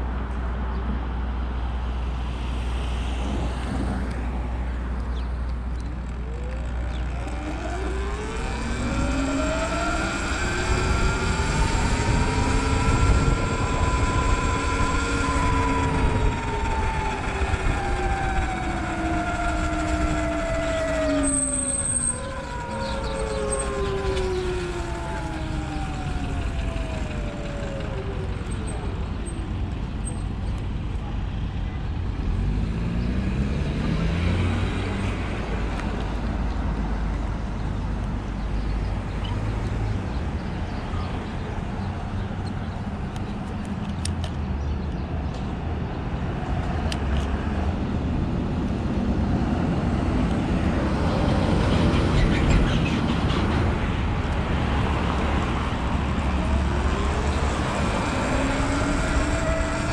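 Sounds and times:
low road rumble: 0.0 - 59.9
traffic noise: 0.0 - 59.9
electric dirt bike riding: 2.4 - 44.8, 46.2 - 59.9.

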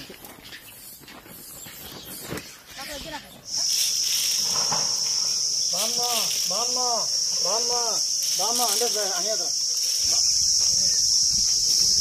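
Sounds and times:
high-pitched insect drone: 2.8 - 12.0.

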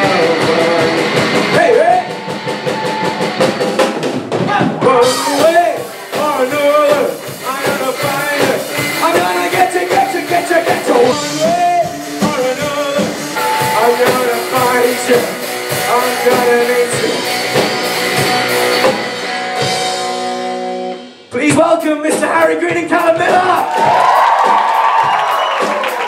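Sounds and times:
person singing: 0.0 - 2.8, 4.6 - 17.6
electric guitar: 0.0 - 21.3
drum kit: 0.0 - 26.0.

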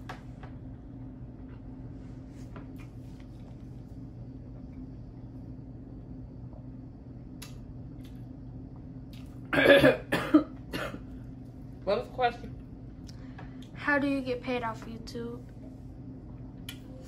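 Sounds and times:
steady low hum: 0.0 - 17.0
loud cough: 9.5 - 11.0.

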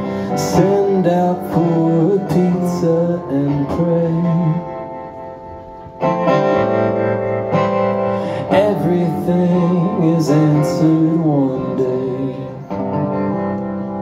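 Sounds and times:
man singing: 0.0 - 5.2, 8.2 - 13.2
acoustic guitar chords: 0.0 - 14.0.

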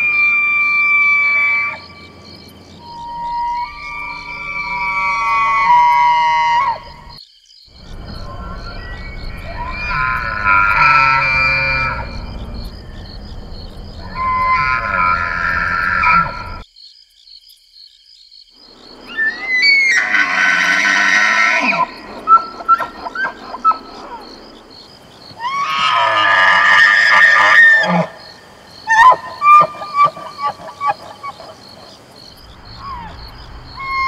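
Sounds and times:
elk bugling: 2.8 - 7.1, 7.7 - 16.6, 25.3 - 34.0.

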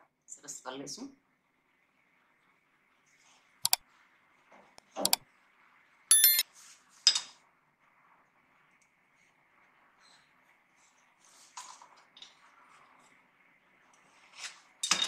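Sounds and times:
bell-like notification chime: 6.1 - 6.4
computer mouse clicks: 6.1 - 6.4.

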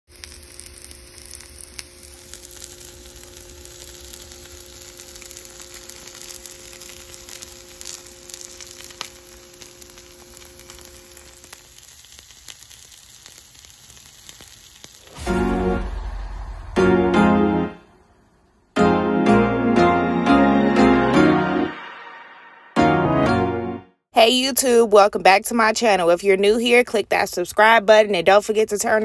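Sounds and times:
fat sizzling in a skillet: 0.1 - 15.9
crackles and pops: 0.1 - 16.0.

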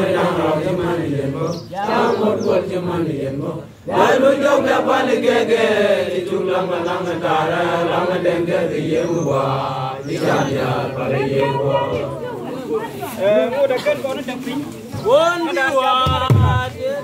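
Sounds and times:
group chanting in unison: 0.0 - 12.9.

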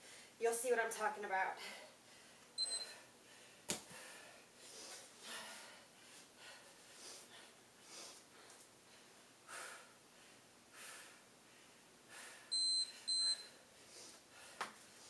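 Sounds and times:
heavy breathing: 1.6 - 12.5
electronic timer beeps: 2.6 - 3.0, 12.5 - 13.5.

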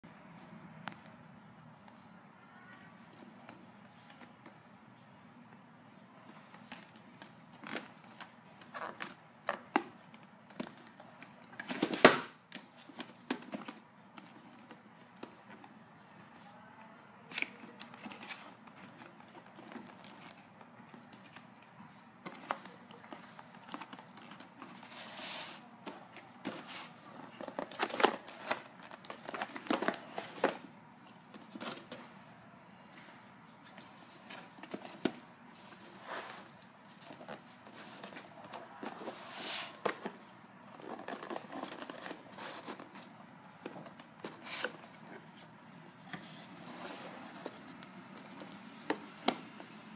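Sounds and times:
cardboard rustling and scraping: 17.7 - 32.1, 33.6 - 49.6.

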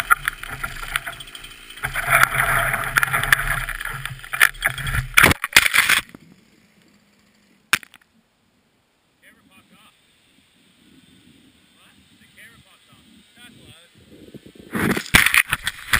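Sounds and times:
wood cracking: 0.0 - 6.2, 7.7 - 8.1, 14.9 - 15.9
tree trunk crashing down: 1.8 - 6.2.

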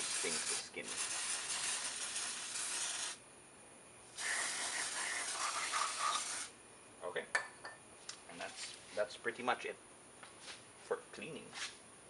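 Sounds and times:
aerosol can spraying: 0.0 - 3.2, 4.2 - 6.5.

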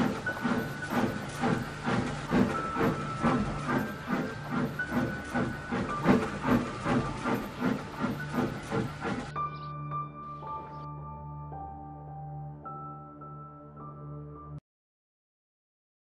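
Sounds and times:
steam locomotive chuffing: 0.0 - 9.4.

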